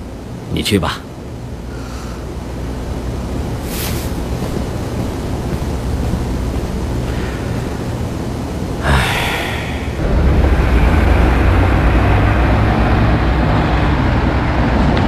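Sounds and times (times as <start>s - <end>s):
steady rushing noise: 0.0s - 15.0s
brief hiss: 3.6s - 4.2s.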